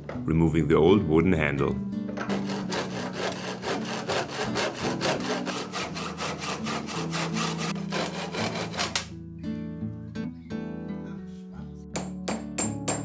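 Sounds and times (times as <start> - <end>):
hand saw cutting wood: 2.2 - 9.2.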